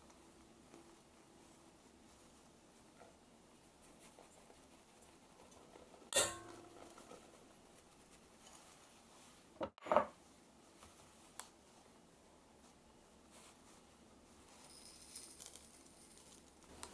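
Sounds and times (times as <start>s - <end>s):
glass bowl clinking on metal bowl: 6.1s - 6.9s.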